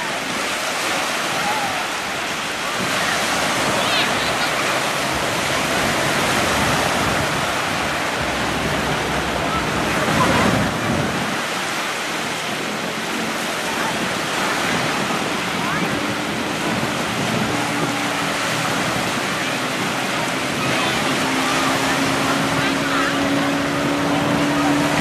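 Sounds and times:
sea surf washing: 0:00.0 - 0:25.0
water sloshing: 0:00.0 - 0:25.0.

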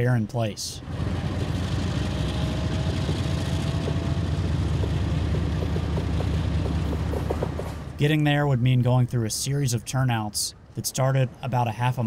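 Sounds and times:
diesel locomotive engine rumble: 0:00.0 - 0:09.8.

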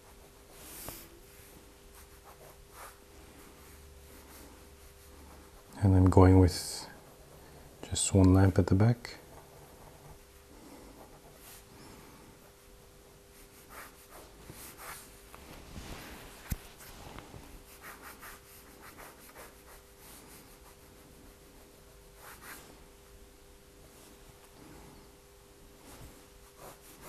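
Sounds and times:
faint hum: 0:00.0 - 0:27.0
pen scratching on paper: 0:26.5 - 0:27.0.

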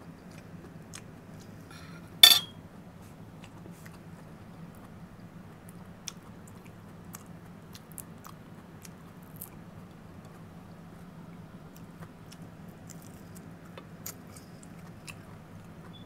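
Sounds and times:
low steady hum: 0:00.0 - 0:16.0
metal spoon clinking on plate: 0:02.2 - 0:02.5
mouth chewing clicks and smacks: 0:05.7 - 0:09.6, 0:11.7 - 0:16.0.

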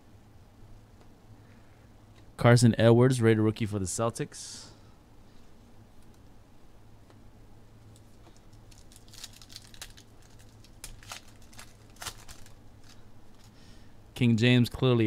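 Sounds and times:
low steady hum: 0:00.0 - 0:15.0
foil wrapper crinkling and tearing: 0:08.0 - 0:13.6.

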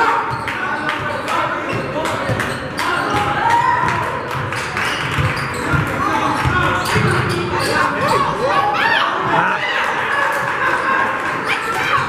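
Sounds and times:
basketball bouncing: 0:00.2 - 0:07.7.

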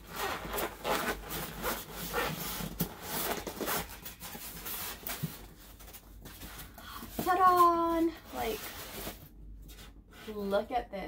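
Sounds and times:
foam scraping against foam: 0:07.2 - 0:09.3.

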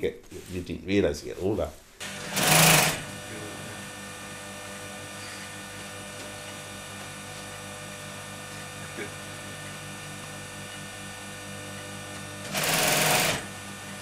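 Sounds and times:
electric hum: 0:01.9 - 0:14.0
industrial sewing machine stitching: 0:02.0 - 0:03.8, 0:12.1 - 0:14.0.

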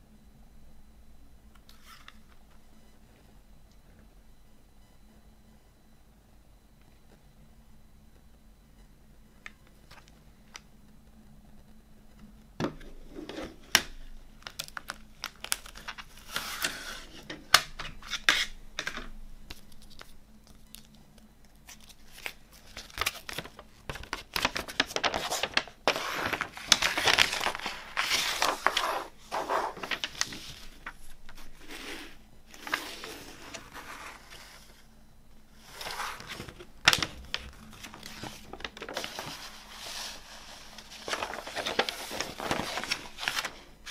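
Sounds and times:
paper rustling and crinkling: 0:13.0 - 0:18.9, 0:19.5 - 0:34.8, 0:35.6 - 0:43.9.

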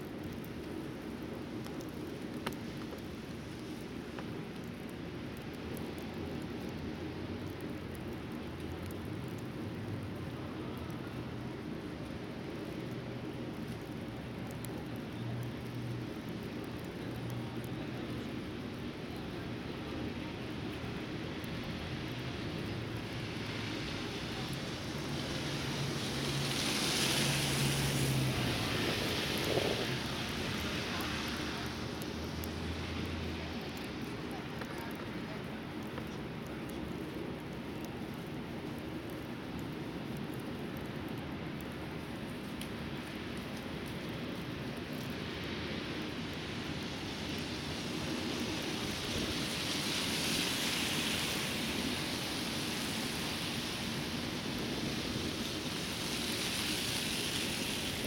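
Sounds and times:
outdoor background noise: 0:00.0 - 0:58.0
snowstorm rushing noise: 0:23.0 - 0:39.1, 0:41.6 - 0:58.0
vehicle engine hum passing: 0:23.3 - 0:34.0.

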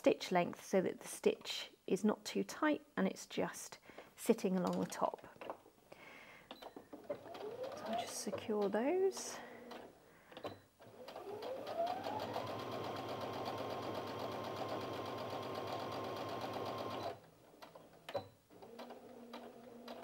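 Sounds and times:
sewing machine stitching: 0:07.0 - 0:08.7, 0:10.8 - 0:20.0.

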